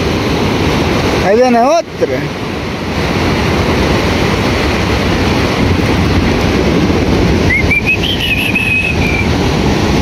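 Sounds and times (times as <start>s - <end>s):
surf washing on beach: 0.0s - 10.0s
wind on microphone: 0.0s - 10.0s
seabird whistling call: 7.4s - 9.4s.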